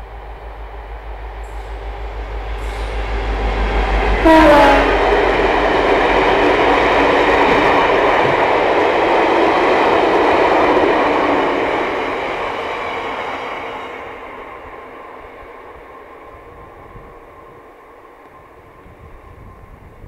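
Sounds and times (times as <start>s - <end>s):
freight train wheels on rails: 0.0s - 20.0s.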